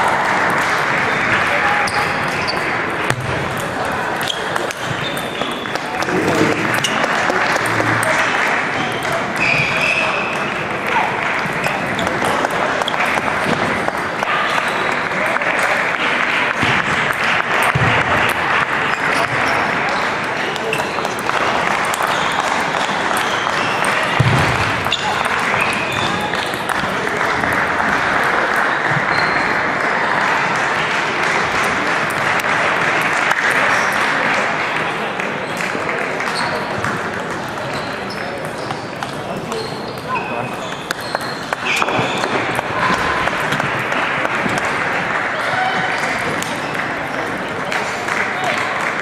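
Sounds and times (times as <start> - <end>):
crowd noise: 0.0 - 49.0
murmur of voices: 0.0 - 49.0
table tennis balls clicking: 2.5 - 9.5, 39.9 - 44.7.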